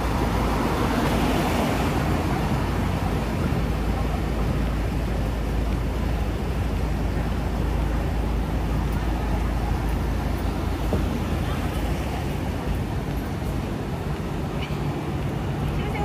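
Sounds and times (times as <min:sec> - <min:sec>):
cars driving past: 0:00.0 - 0:16.0.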